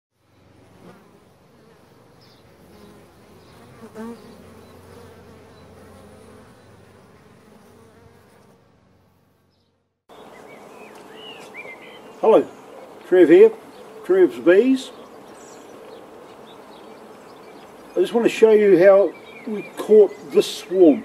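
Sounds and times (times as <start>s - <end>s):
bees buzzing: 0.2s - 21.0s.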